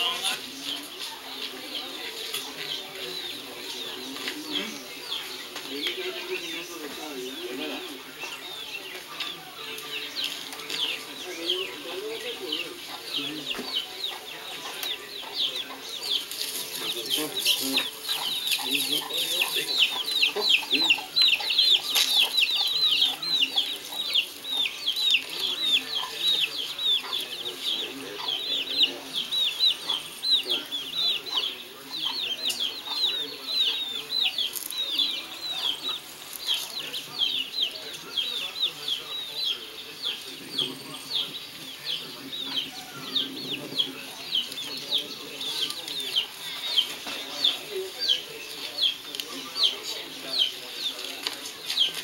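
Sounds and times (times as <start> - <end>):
chickens clucking: 0.0 - 52.0
chicks peeping: 0.0 - 52.0.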